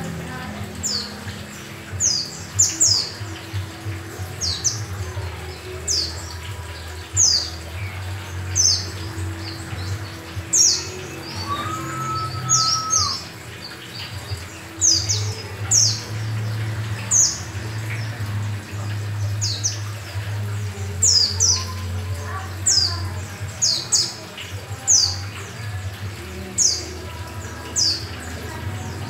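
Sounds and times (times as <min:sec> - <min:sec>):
bird chirping: 0:05.8 - 0:16.1.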